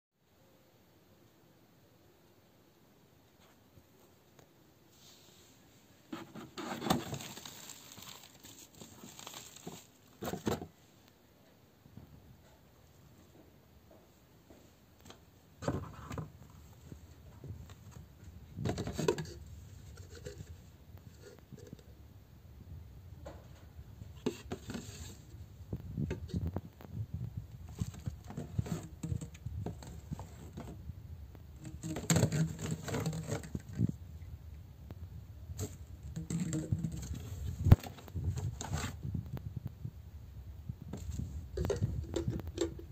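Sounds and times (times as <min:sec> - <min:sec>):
cardboard box rustling: 0:06.2 - 0:10.7, 0:31.6 - 0:33.8, 0:35.6 - 0:39.0
bubble wrap crinkling: 0:06.8 - 0:10.4.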